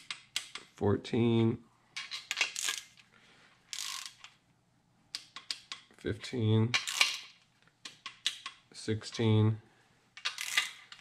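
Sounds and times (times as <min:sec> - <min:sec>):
torque wrench ratchet clicking: 0:03.8 - 0:04.3, 0:10.2 - 0:10.9.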